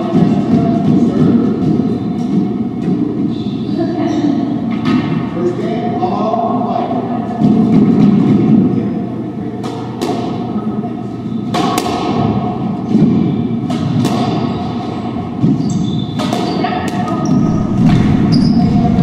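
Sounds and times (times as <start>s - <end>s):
squash ball hits: 9.6s - 10.5s, 11.5s - 19.0s.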